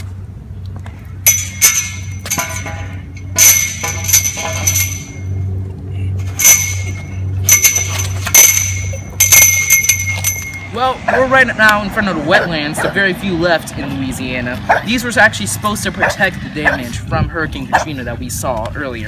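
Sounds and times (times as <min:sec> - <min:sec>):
metal pole clanging on pavement: 0:01.2 - 0:05.5, 0:06.2 - 0:13.0.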